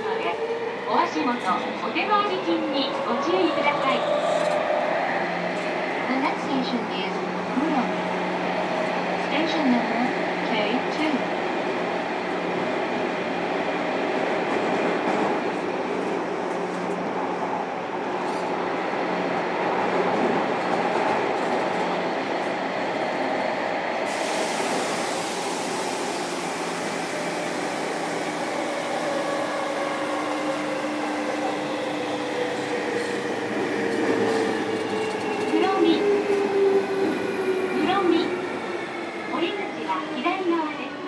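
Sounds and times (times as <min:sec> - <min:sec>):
train wheels rumbling on rail: 0:00.0 - 0:41.0
hiss: 0:24.1 - 0:28.2.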